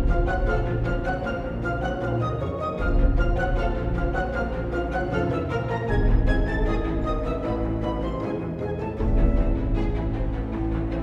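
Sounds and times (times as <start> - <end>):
deep bass line: 0.0 - 1.2.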